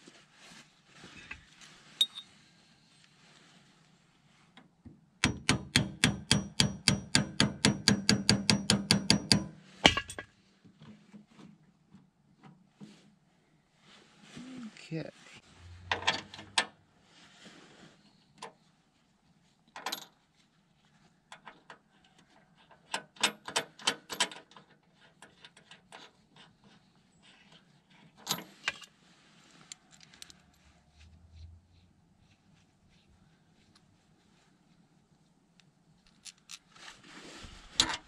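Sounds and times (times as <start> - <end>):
metal tools clinking: 2.0 - 2.3.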